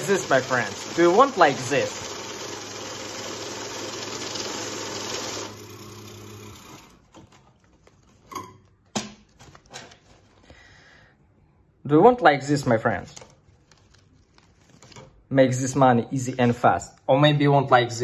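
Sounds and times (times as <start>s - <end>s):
banknote counting machine whirring: 0.0s - 7.0s.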